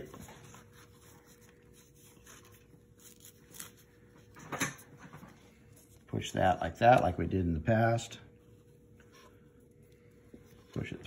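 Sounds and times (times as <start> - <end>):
rustling and scraping of straps: 0.0 - 6.2.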